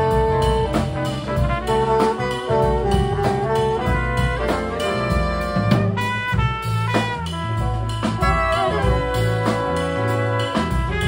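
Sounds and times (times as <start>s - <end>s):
drum kit: 0.0s - 11.0s
horns playing held chords: 0.0s - 11.0s
walking upright bass: 0.0s - 11.0s.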